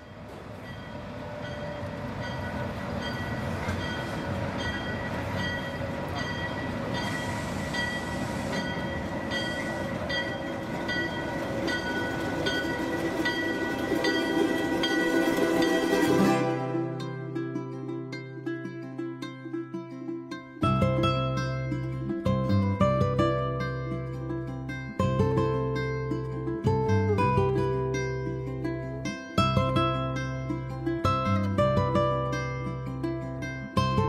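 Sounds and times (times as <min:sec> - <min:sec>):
diesel locomotive engine running: 0:00.0 - 0:17.6
locomotive bell ringing: 0:00.0 - 0:17.6.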